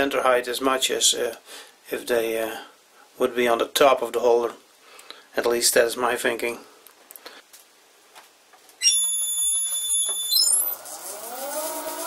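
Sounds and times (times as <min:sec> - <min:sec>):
high-pitched electronic motor whine: 0:08.8 - 0:12.0
spindle motor spinning up: 0:08.8 - 0:12.0.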